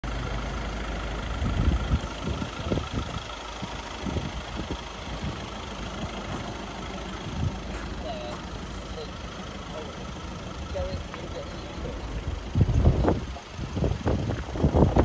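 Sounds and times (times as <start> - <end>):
van engine idling: 0.0 - 15.0.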